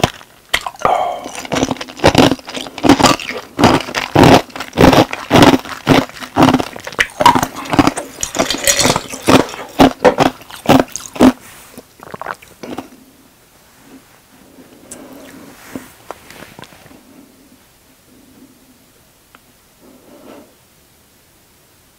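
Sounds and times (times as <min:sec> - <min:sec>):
person gulping a drink: 0:00.0 - 0:13.0.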